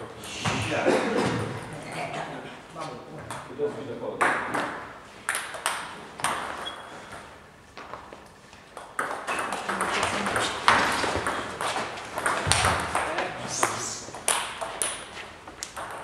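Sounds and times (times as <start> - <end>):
table tennis ball clicking: 15.6 - 16.0.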